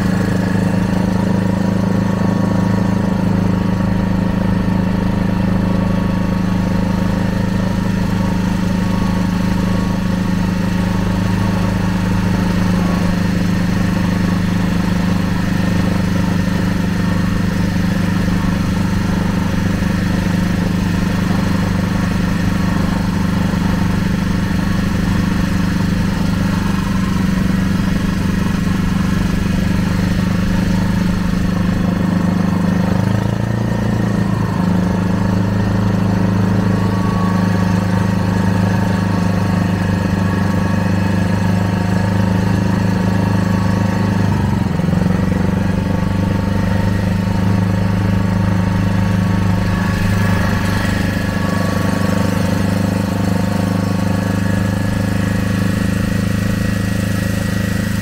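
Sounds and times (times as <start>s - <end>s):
boat engine droning: 0.0s - 58.0s.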